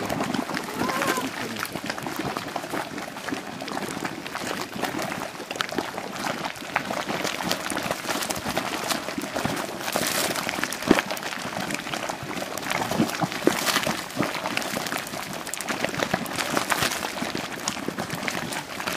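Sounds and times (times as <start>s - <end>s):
mud pool bubbling and popping: 0.0s - 18.9s.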